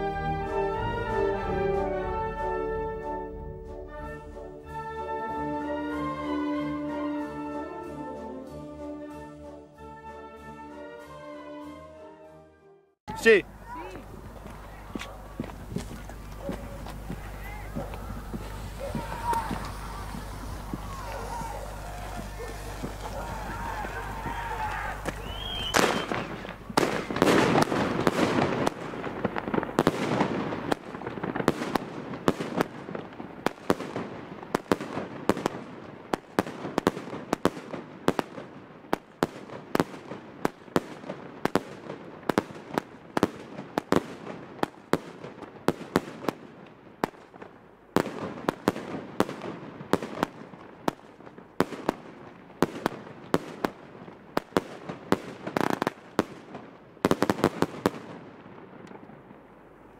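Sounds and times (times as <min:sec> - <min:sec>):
firework reports: 0:13.1 - 0:53.8
hissing of burning shells: 0:13.6 - 0:35.4.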